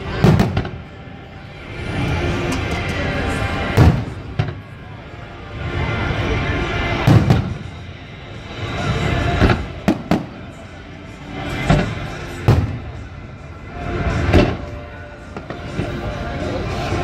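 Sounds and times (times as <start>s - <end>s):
fireworks bursting: 0.0s - 1.0s, 2.3s - 4.9s, 7.0s - 7.8s, 9.1s - 10.7s, 11.5s - 13.2s
background music: 0.0s - 17.0s.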